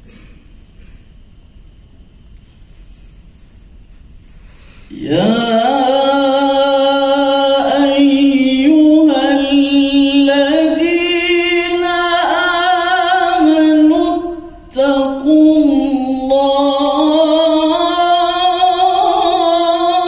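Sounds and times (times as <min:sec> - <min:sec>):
man reciting melodically into microphone: 0:04.9 - 0:20.0.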